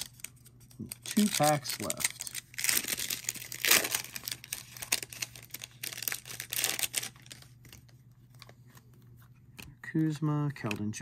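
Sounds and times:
foil wrapper crinkling and tearing: 0.0s - 8.4s.

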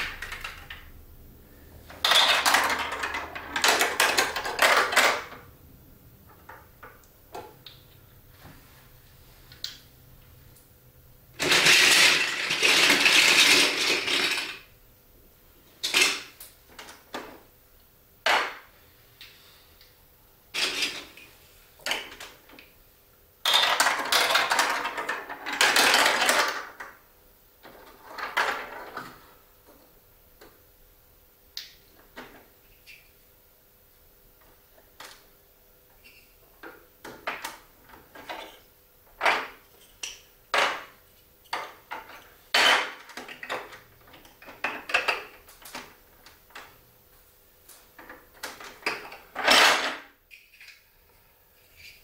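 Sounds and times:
plastic blocks rattling: 0.0s - 0.9s, 1.9s - 5.4s, 11.4s - 14.7s, 15.8s - 17.4s, 20.5s - 21.2s, 23.4s - 27.0s, 27.7s - 29.2s, 37.1s - 46.7s, 48.0s - 50.8s
plastic pieces clicking and knocking: 0.0s - 0.9s, 1.9s - 5.4s, 11.4s - 14.7s, 15.8s - 17.4s, 23.4s - 27.0s, 36.6s - 38.6s, 39.2s - 46.7s.

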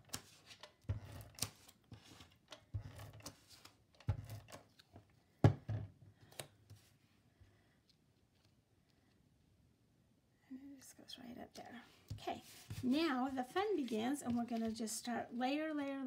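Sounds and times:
paper being handled: 12.1s - 15.2s.

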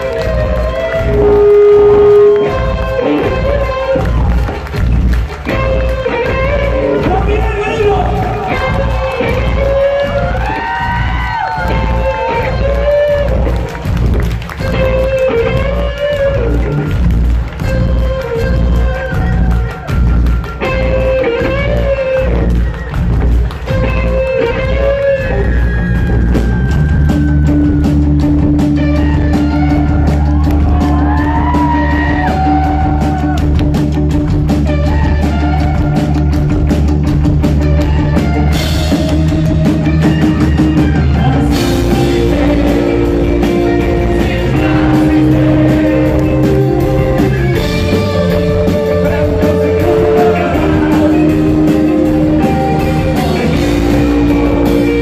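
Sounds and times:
bass guitar: 0.0s - 55.0s
drum kit: 0.0s - 55.0s
electric guitars: 0.0s - 55.0s.

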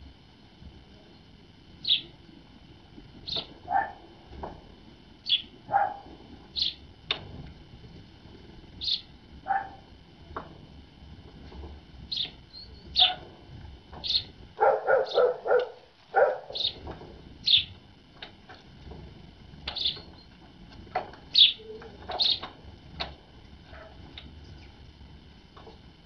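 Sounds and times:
birds chirping: 1.2s - 2.3s, 3.2s - 4.0s, 5.2s - 6.9s, 8.7s - 9.9s, 12.0s - 13.3s, 13.9s - 17.8s, 19.6s - 22.6s, 23.7s - 24.9s.

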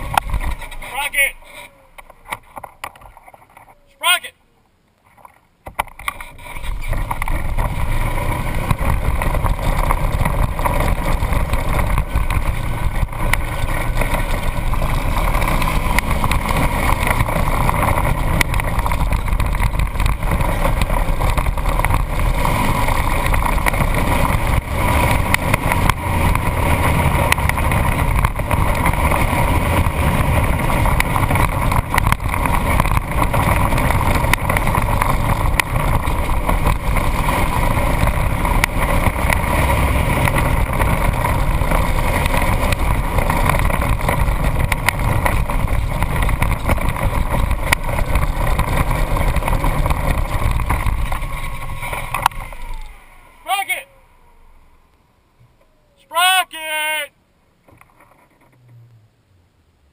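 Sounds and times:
vehicle engine running: 0.0s - 3.6s, 5.8s - 56.0s
wind over camera: 0.0s - 3.9s, 5.0s - 53.6s
tyre and road rumble: 0.0s - 59.9s.

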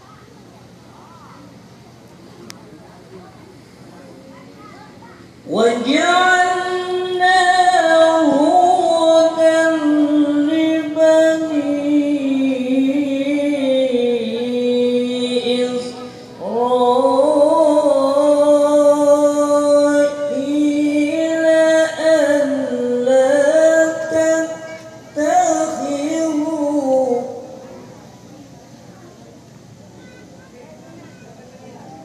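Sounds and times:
man reciting melodically: 5.5s - 27.6s.

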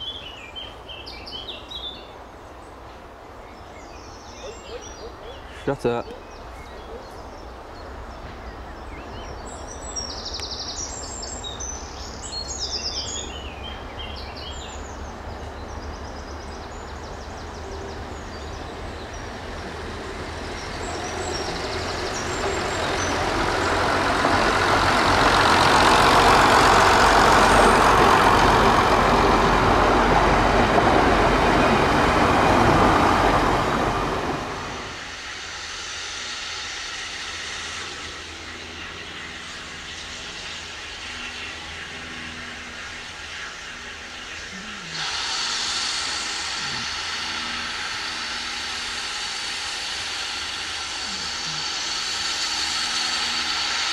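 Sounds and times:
birds chirping: 0.0s - 24.6s, 37.8s - 53.9s
diesel train passing: 0.0s - 53.9s.

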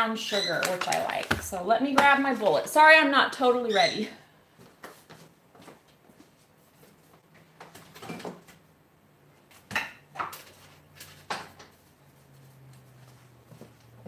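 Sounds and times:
kitchen items knocking and clattering: 0.5s - 2.8s.

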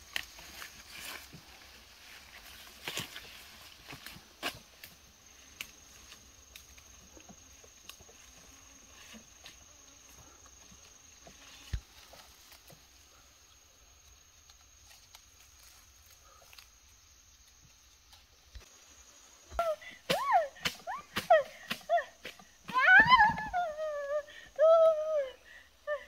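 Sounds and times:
high insect drone: 0.0s - 26.0s
rustling of leafy undergrowth: 0.0s - 26.0s.

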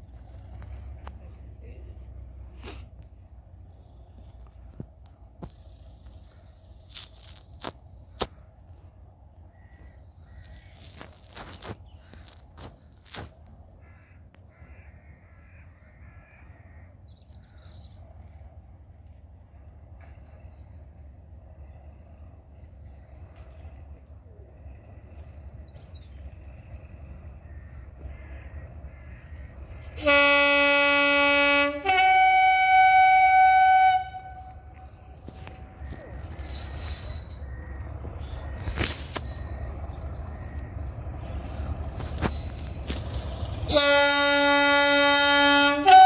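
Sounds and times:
crows cawing: 9.5s - 13.2s, 13.8s - 17.0s, 27.4s - 29.9s, 37.4s - 38.9s
two-tone locomotive horn: 29.8s - 35.6s, 43.6s - 46.0s.

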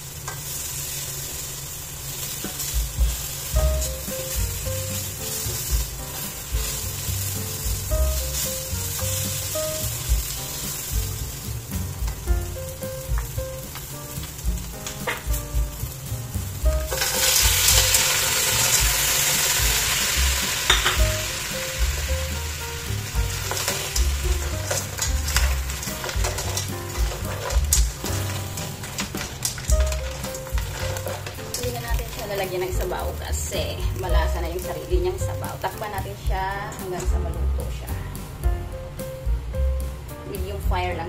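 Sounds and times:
food sizzling in a pot: 0.0s - 41.0s
spatula stirring and scraping: 2.1s - 15.4s, 23.1s - 34.7s.

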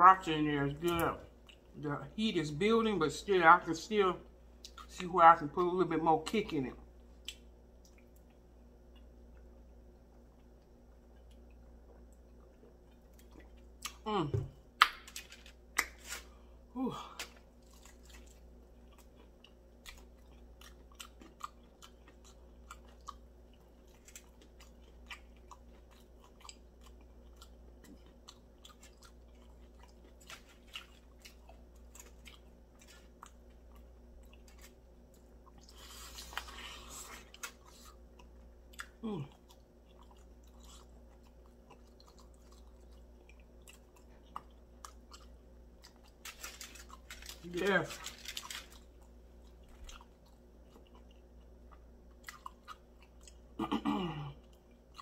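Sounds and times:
close-miked chewing: 0.8s - 1.8s, 7.2s - 14.1s, 17.2s - 53.6s, 54.3s - 55.0s
person humming mm: 39.0s - 39.4s.

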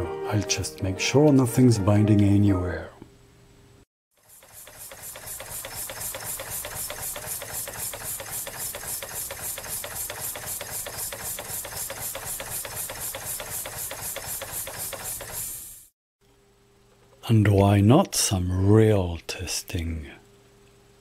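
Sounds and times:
model steam engine knocking and chuffing: 4.1s - 15.9s.

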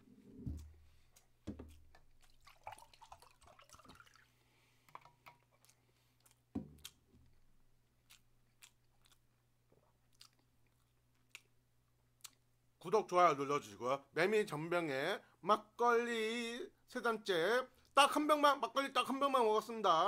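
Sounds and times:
faint chewing clicks: 0.6s - 2.6s, 4.8s - 11.6s, 12.2s - 12.5s
dull knocks of bottle and mug: 1.5s - 1.7s
liquid pouring into mug: 2.2s - 4.3s.

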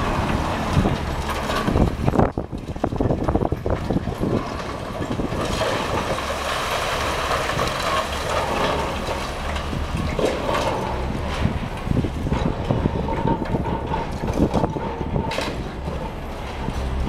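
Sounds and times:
rubble pouring down: 0.0s - 13.0s
concrete cracking: 0.0s - 17.0s
excavator running: 0.0s - 17.0s.

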